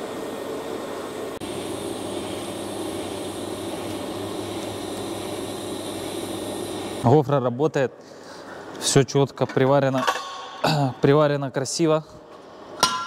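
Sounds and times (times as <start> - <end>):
arc welding hiss: 1.4 - 7.0.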